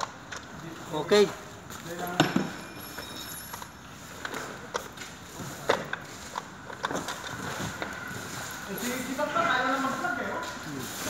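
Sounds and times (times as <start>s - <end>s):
room noise: 0.0s - 11.0s.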